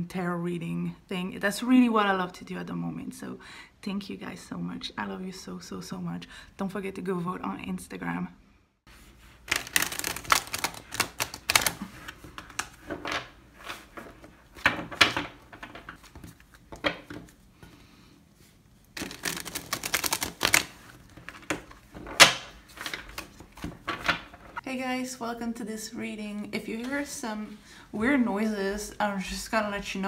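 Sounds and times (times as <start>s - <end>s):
cards being shuffled: 9.0s - 17.4s, 19.0s - 24.6s.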